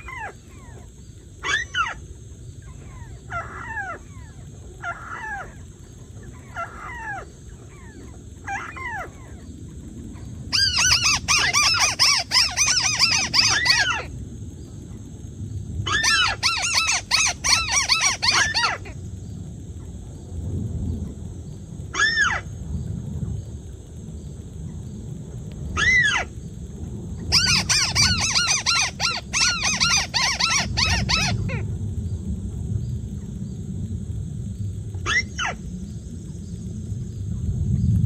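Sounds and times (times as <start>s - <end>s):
rapid bird chattering: 16.0s - 18.7s, 27.3s - 31.4s.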